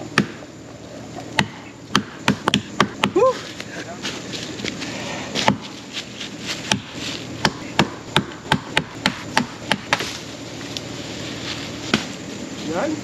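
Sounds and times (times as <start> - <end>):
wood being chopped: 0.0 - 0.5, 1.3 - 3.4, 5.4 - 5.8, 6.5 - 10.2, 11.9 - 12.2.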